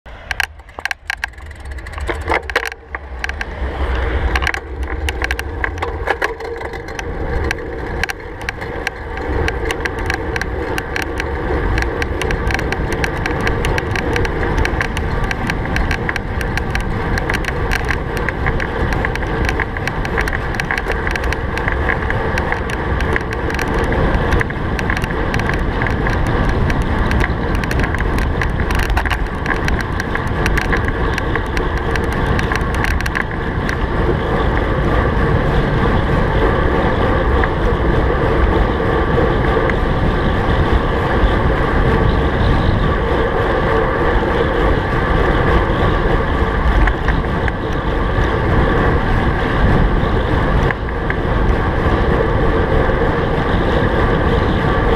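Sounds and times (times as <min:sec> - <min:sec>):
bike tyres rumbling on asphalt: 0:00.0 - 0:54.9
wind rushing over microphone: 0:00.0 - 0:54.9
small clicks and rattles: 0:00.1 - 0:54.9.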